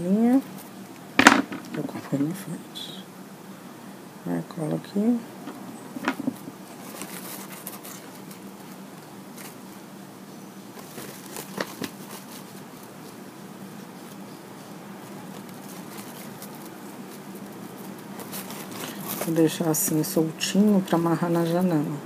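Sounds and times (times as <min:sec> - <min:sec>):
faint steady hum: 0:00.0 - 0:22.0
ribbon rustling: 0:05.4 - 0:09.9, 0:10.7 - 0:20.0.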